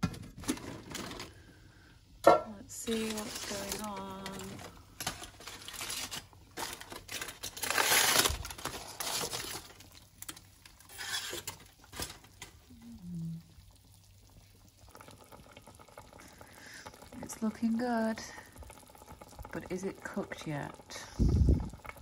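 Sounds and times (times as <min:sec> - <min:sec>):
aluminium foil crinkling: 0:00.2 - 0:01.5, 0:02.7 - 0:12.8.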